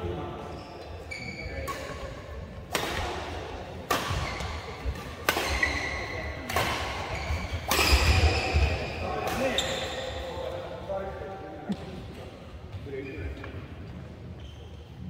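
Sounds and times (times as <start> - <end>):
rackets hitting shuttlecock: 2.7 - 9.6.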